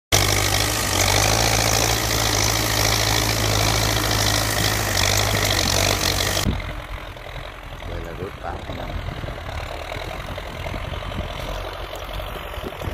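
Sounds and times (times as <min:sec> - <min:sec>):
plough rushing noise: 0:00.1 - 0:12.9
tractor engine hum: 0:00.1 - 0:12.9.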